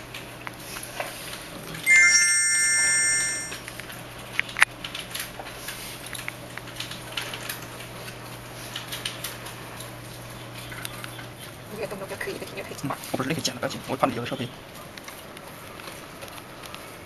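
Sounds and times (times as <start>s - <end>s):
electronic phone chord: 1.9s - 3.7s.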